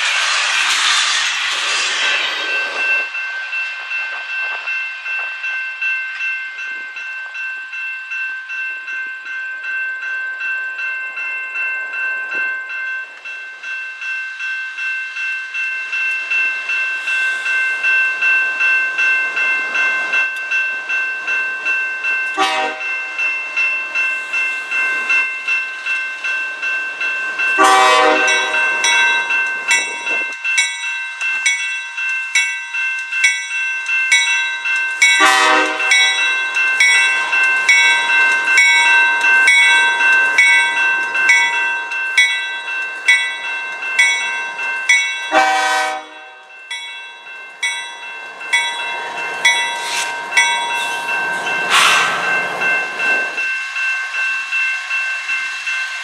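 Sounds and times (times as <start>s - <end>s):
railway crossing bell ringing: 0.0s - 56.0s
train wheel noise: 0.0s - 56.0s
locomotive horn blast: 22.4s - 22.8s, 27.6s - 28.6s, 35.2s - 35.9s, 45.3s - 46.4s, 51.7s - 52.2s.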